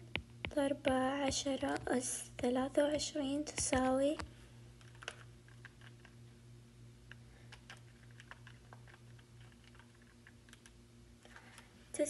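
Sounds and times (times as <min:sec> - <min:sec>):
low steady hum: 0:00.0 - 0:12.0
calculator keys clicking: 0:03.5 - 0:05.9, 0:07.5 - 0:10.8.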